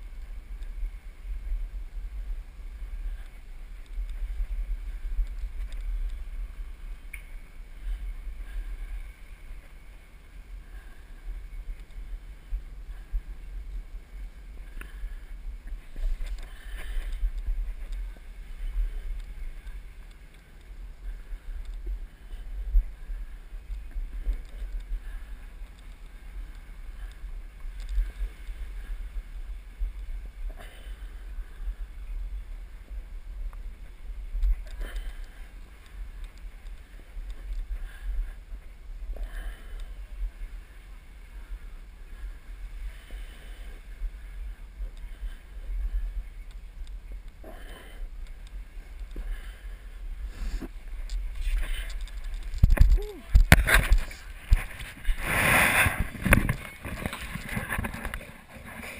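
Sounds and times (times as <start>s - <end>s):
wind buffeting microphone: 48.0s - 58.9s.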